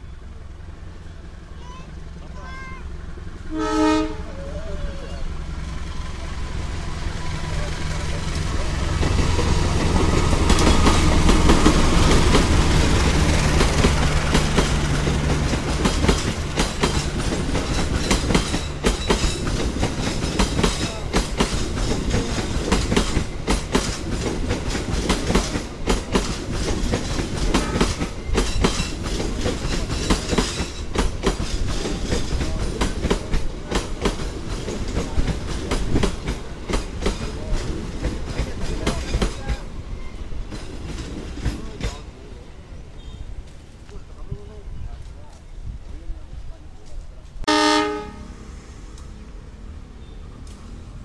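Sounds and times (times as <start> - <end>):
locomotive engine hum: 0.0 - 51.0
train wheels clickety-clack: 7.3 - 42.2.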